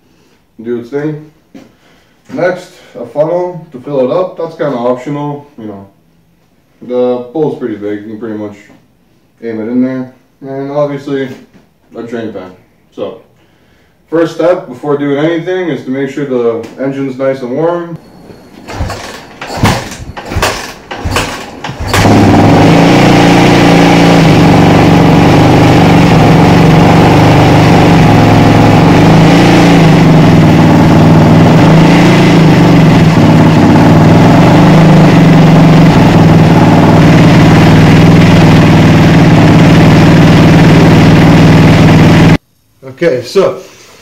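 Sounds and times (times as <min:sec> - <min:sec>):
engine knocks: 0:18.5 - 0:25.7
motorcycle engine idling: 0:18.6 - 0:42.4.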